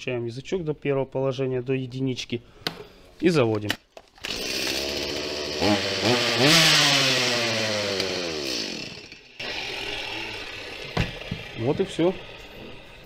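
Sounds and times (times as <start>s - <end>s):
chainsaw revving and running: 4.2s - 13.0s.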